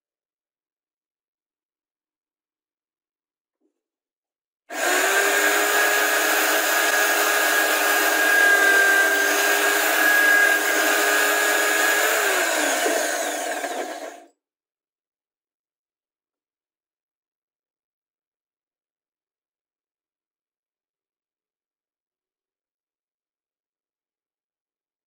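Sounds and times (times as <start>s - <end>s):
drill cutting through wood: 4.7s - 14.3s
drill press motor whine: 4.7s - 14.3s.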